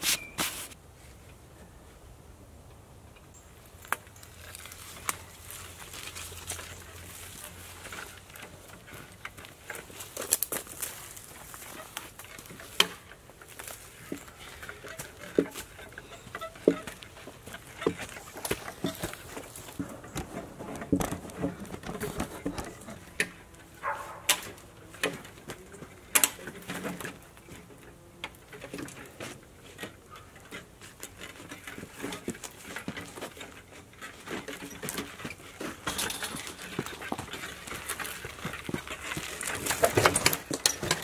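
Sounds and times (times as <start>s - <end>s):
footsteps on leafy ground: 0.0s - 0.8s, 3.6s - 23.0s, 23.7s - 26.0s, 31.8s - 41.0s
hand cart knocking and rattling: 4.5s - 27.6s, 28.5s - 41.0s.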